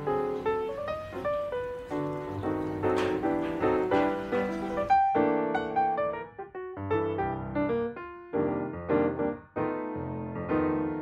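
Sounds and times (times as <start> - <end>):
gentle piano melody: 0.0 - 11.0.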